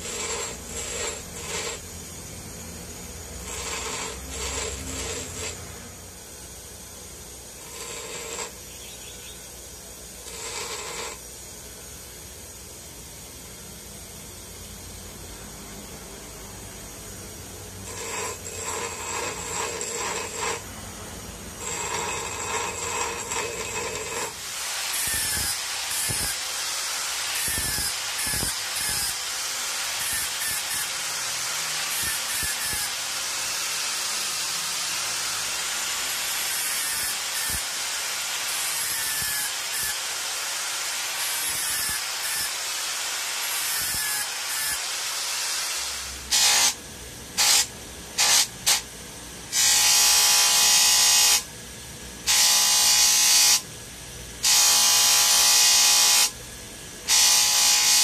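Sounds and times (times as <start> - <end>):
angle grinder grinding metal: 0.0 - 11.6, 17.7 - 46.8, 47.4 - 48.9, 49.5 - 51.5, 52.2 - 53.6, 54.4 - 56.4, 57.1 - 58.0
machine whine: 0.0 - 42.6.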